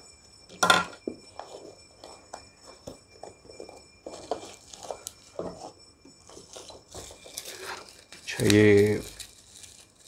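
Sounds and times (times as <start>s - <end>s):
packing tape ripping: 6.6s - 10.0s.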